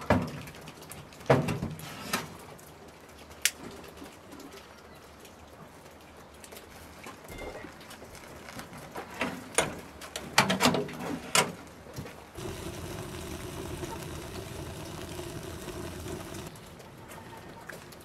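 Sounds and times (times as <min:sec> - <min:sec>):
steady low hum: 0:12.4 - 0:16.5.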